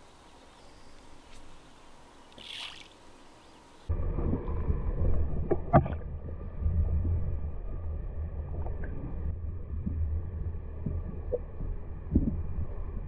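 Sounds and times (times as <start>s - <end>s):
muffled underwater rumble: 3.8s - 13.0s.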